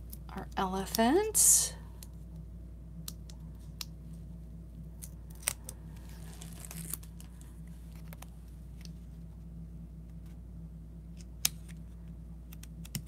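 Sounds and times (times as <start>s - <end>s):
faint steady hum: 0.0s - 13.0s
paper rustle: 6.0s - 8.3s.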